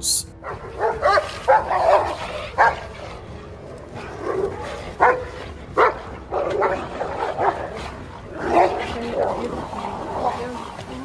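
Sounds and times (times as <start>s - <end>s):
dogs barking and yelping: 0.3s - 11.0s.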